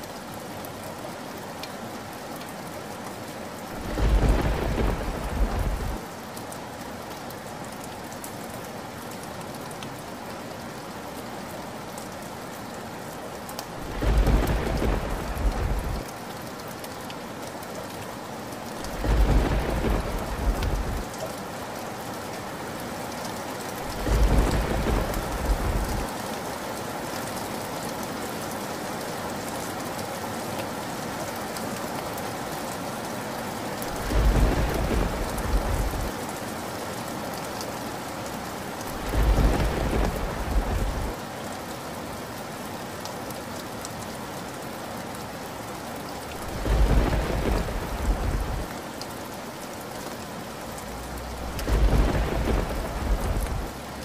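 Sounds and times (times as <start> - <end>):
steady rain: 0.0 - 54.0
thunder rumbling: 3.8 - 6.0, 13.8 - 16.0, 18.9 - 21.0, 23.9 - 26.1, 33.9 - 36.1, 38.9 - 41.2, 46.4 - 48.7, 51.4 - 53.8.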